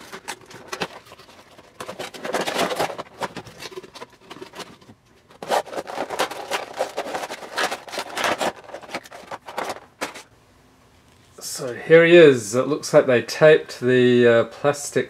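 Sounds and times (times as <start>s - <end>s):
plastic tray crinkling: 0.0s - 10.3s.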